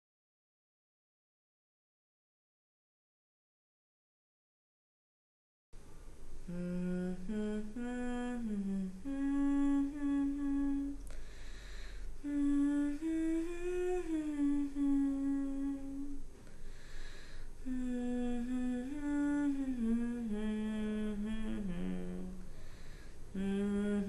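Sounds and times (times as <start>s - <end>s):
woman humming: 6.5s - 11.2s, 12.2s - 16.3s, 17.6s - 22.5s, 23.3s - 24.0s
woman breathing: 11.0s - 12.2s, 16.4s - 17.8s, 22.4s - 23.4s.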